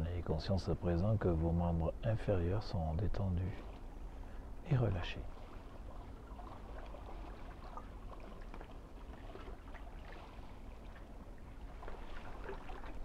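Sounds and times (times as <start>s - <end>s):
low steady rumble: 0.0s - 13.0s
water lapping against rocks: 5.0s - 13.0s.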